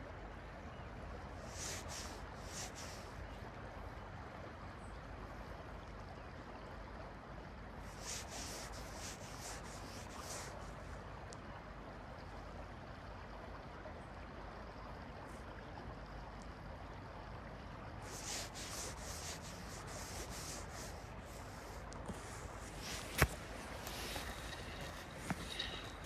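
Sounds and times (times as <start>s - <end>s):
river water flowing and lapping: 0.0s - 26.0s
rubbing hiss in short strokes: 1.4s - 3.1s, 7.9s - 10.8s, 18.0s - 26.0s.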